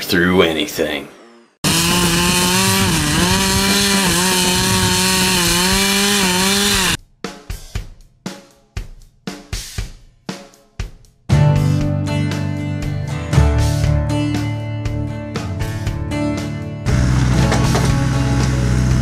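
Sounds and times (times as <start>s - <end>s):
chainsaw cutting tree trunk: 1.6s - 7.0s, 16.9s - 19.0s
drum beats: 1.6s - 11.8s.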